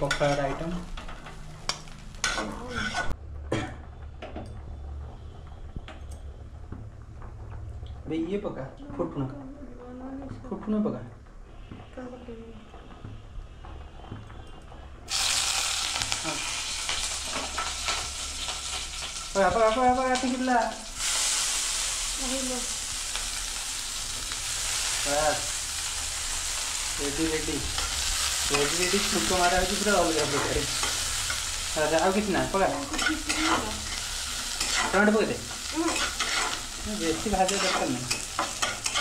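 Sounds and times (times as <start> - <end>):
spices sizzling in hot oil: 0.0 - 3.2, 15.1 - 39.0.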